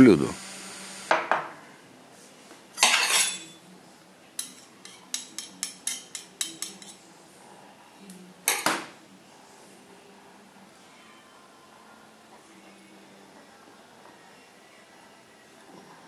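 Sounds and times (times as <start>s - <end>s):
metal spoon tapping porcelain egg cup: 4.4s - 7.0s
spoon clatter: 4.4s - 7.0s.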